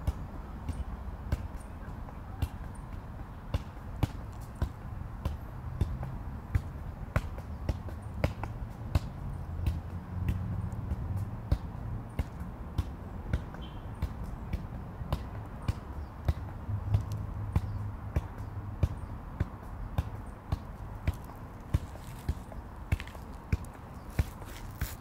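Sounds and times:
ball being tapped: 9.7s - 25.0s.

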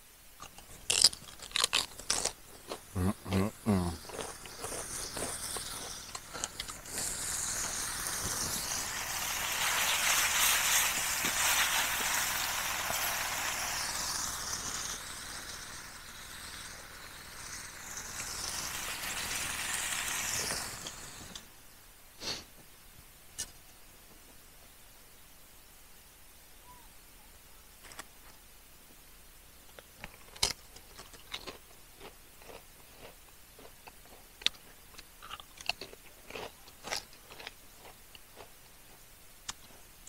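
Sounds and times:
steak sizzling over campfire: 2.5s - 21.5s.

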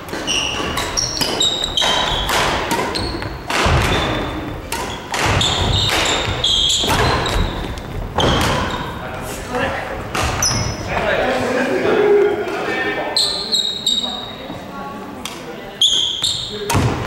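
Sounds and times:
racket hitting shuttlecock: 0.0s - 8.9s, 16.7s - 17.0s
sneakers squeaking: 0.0s - 9.4s, 10.0s - 11.1s, 13.1s - 14.7s, 15.7s - 17.0s.

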